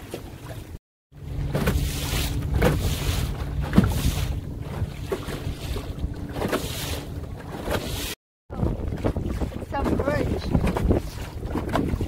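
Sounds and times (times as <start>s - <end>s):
water lapping at a canoe: 0.0s - 12.0s
wind buffeting microphone: 8.5s - 12.0s.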